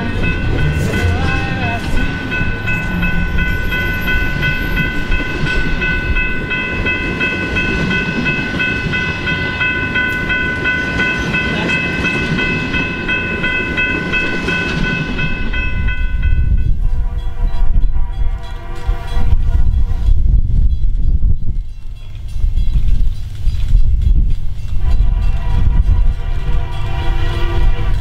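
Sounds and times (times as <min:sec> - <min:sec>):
high repeating ringing: 0:00.0 - 0:16.8
train wheels rumbling on rails: 0:00.0 - 0:28.0.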